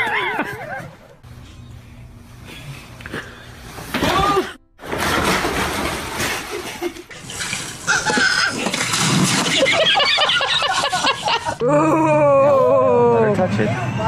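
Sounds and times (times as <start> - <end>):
person yelling: 4.0 - 4.6
water splashing and gushing: 4.8 - 9.9.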